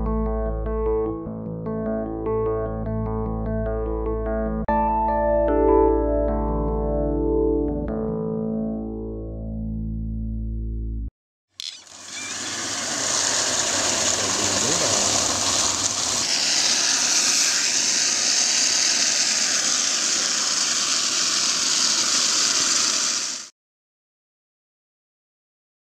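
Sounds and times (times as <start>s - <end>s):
water jetting from pipe: 11.8s - 23.5s.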